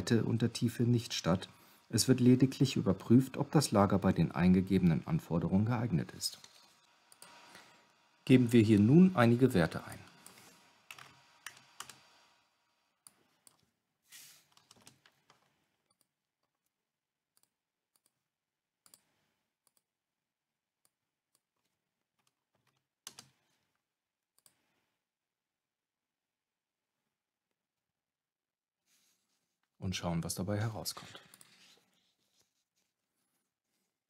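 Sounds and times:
keyboard and mouse clicks: 0:14.5 - 0:16.7, 0:18.8 - 0:19.9, 0:22.2 - 0:23.4.

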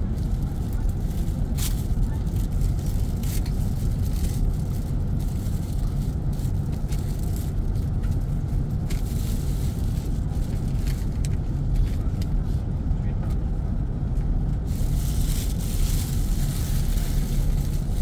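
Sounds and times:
airliner cabin rumble: 0:00.0 - 0:18.0
light rattles and clicks: 0:00.2 - 0:12.4.

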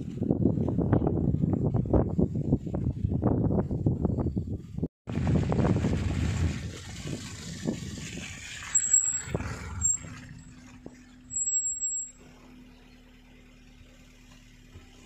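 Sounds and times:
vehicle engine humming: 0:08.4 - 0:15.0
thin high-pitched tones: 0:08.8 - 0:10.1, 0:11.3 - 0:12.2.

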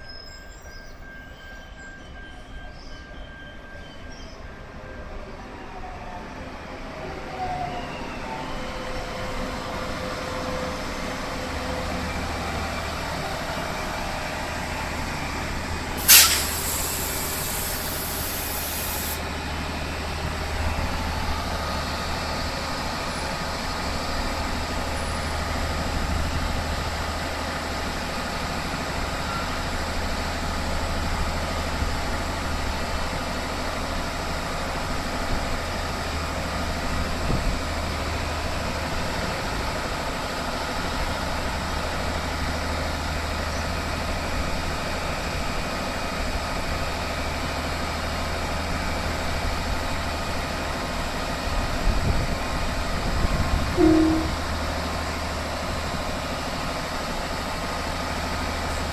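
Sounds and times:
train rumbling past: 0:00.0 - 0:58.9
loud air hiss: 0:16.0 - 0:19.3.

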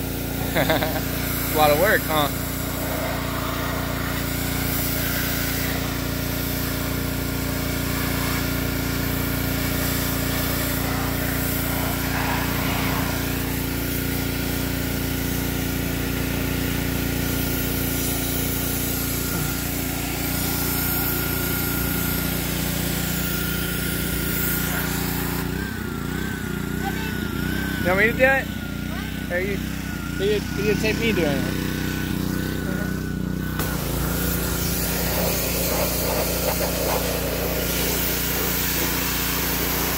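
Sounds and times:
water jet hissing: 0:00.0 - 0:25.6, 0:33.5 - 0:39.9
small gasoline engine running: 0:00.0 - 0:39.9.

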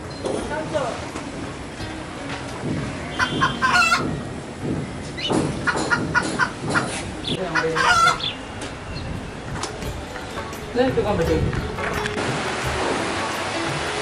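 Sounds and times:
chickens clucking: 0:03.1 - 0:04.4, 0:05.1 - 0:08.5.

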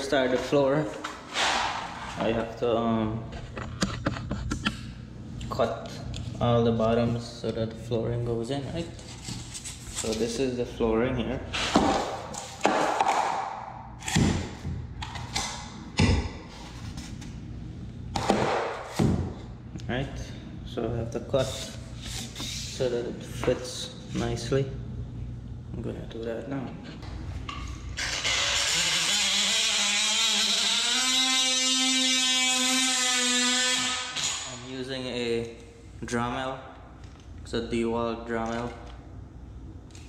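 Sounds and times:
oscillating multi-tool cutting wood: 0:28.0 - 0:34.6.

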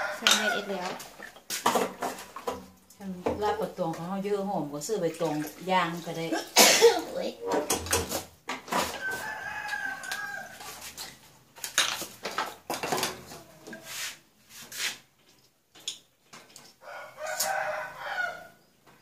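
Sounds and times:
rooster crowing: 0:00.0 - 0:00.8, 0:08.9 - 0:10.7, 0:16.8 - 0:18.6.

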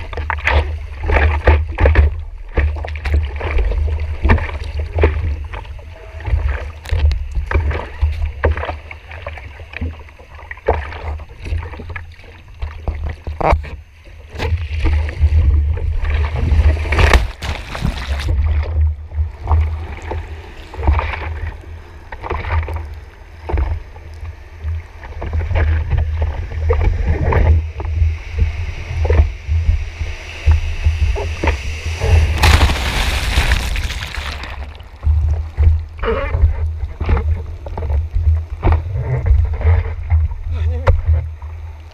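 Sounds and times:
seawater splashing over camera: 0:16.7 - 0:18.7, 0:31.5 - 0:36.6.

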